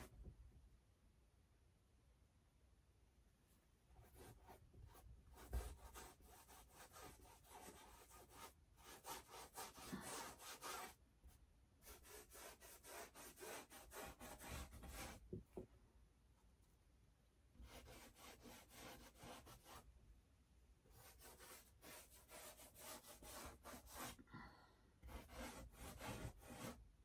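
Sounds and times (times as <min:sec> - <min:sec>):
paintbrush scrubbing on canvas: 0:04.0 - 0:11.0, 0:11.8 - 0:15.2, 0:17.6 - 0:19.9, 0:20.9 - 0:24.2, 0:25.0 - 0:26.8.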